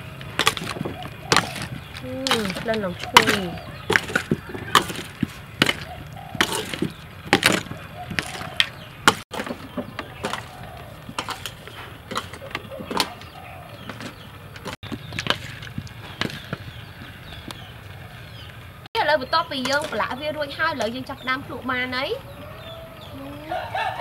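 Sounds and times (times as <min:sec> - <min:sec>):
metal spoons scraping metal tray: 0:00.4 - 0:15.5.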